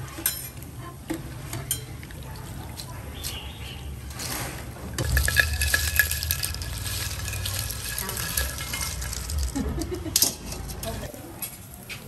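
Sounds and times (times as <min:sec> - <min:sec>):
wire skimmer scraping fried food: 0:04.0 - 0:12.0
hot oil sizzling: 0:04.1 - 0:12.0.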